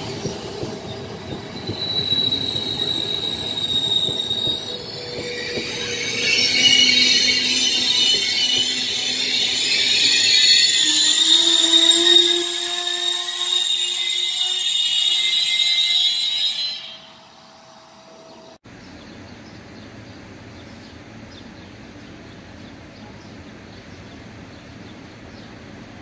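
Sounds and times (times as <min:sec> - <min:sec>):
train wheels squealing on rails: 0:00.0 - 0:18.6.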